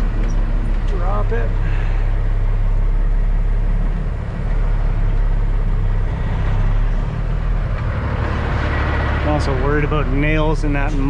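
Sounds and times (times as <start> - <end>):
diesel truck engine running: 0.0 - 11.0.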